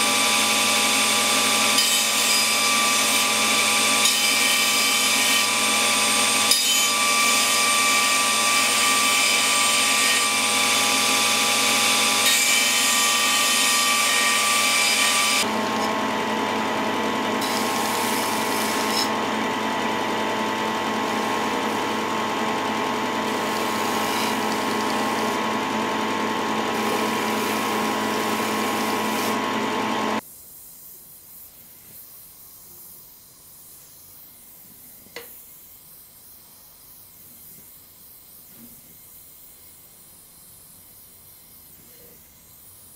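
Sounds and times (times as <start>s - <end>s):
belt grinder grinding blade: 0.0s - 16.0s, 17.4s - 30.1s.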